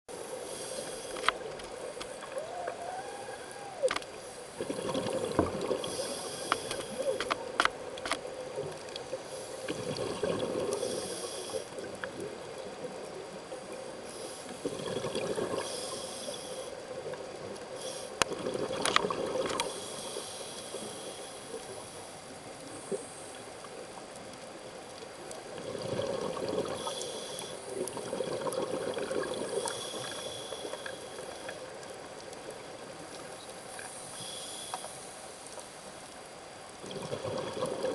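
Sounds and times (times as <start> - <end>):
hissing regulator inhalations: 0.2 - 4.7, 5.6 - 7.4, 10.6 - 12.0, 14.0 - 14.8, 15.5 - 16.8, 17.7 - 18.3, 19.5 - 23.5, 26.6 - 27.9, 29.5 - 31.7, 33.7 - 35.8
bubbly underwater exhalations: 4.6 - 7.2, 9.7 - 10.9, 14.6 - 15.7, 18.3 - 19.7, 25.5 - 27.0, 27.8 - 29.8, 36.8 - 37.9.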